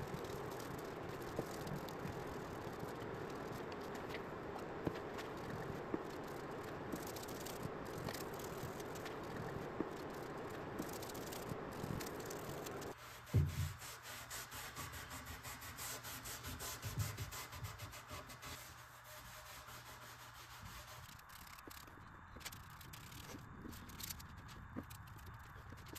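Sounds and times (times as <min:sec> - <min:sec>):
paintbrush scrubbing wood: 0:00.0 - 0:21.6
thump: 0:13.3 - 0:13.8.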